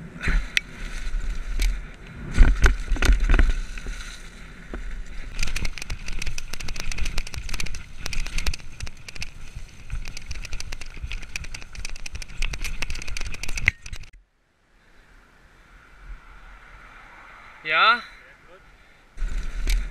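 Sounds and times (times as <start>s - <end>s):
bike rattling over rocks: 0.3s - 14.2s, 19.2s - 19.9s.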